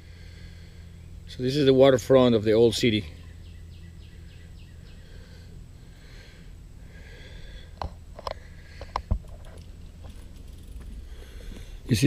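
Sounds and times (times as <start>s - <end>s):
bird chirping: 2.5s - 5.5s.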